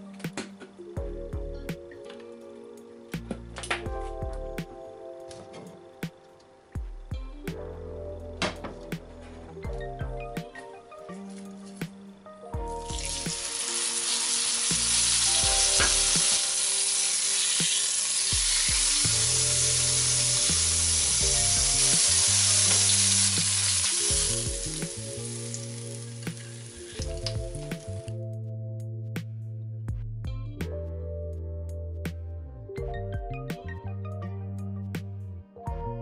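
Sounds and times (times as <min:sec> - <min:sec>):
background music: 0:00.0 - 0:36.0
meat sizzling in hot oil: 0:12.7 - 0:28.1.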